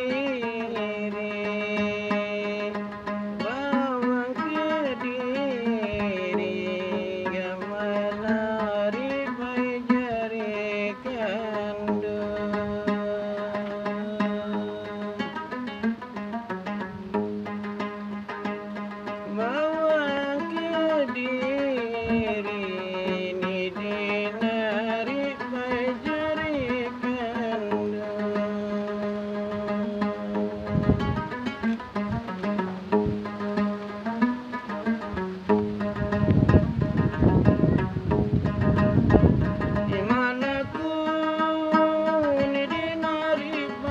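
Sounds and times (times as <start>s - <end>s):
man singing: 0.0s - 15.8s, 19.0s - 31.6s, 39.6s - 43.9s
plucked lute playing: 0.0s - 43.9s.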